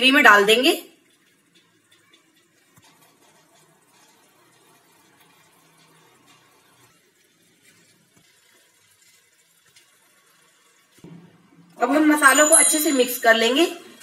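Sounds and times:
gravy sizzling in a pan: 0.0s - 11.1s.

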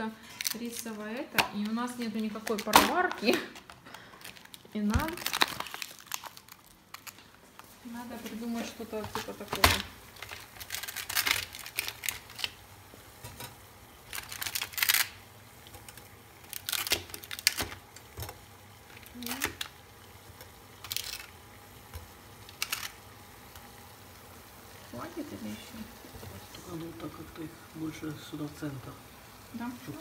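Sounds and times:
plastic tray crinkling and clicking: 22.5s - 23.0s.

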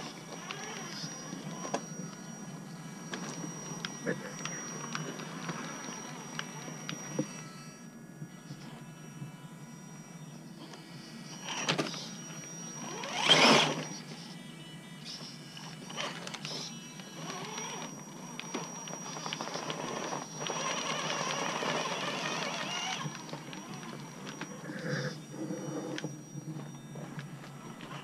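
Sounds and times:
electric motor and gearbox whirring: 0.0s - 28.0s.

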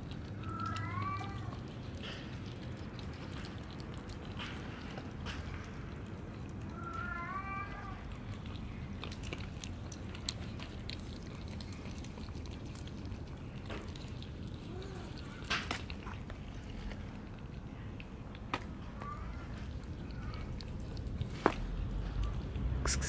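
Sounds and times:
cats crunching dry kibble: 0.0s - 23.0s
kitten meowing: 0.4s - 1.6s, 6.7s - 8.1s.

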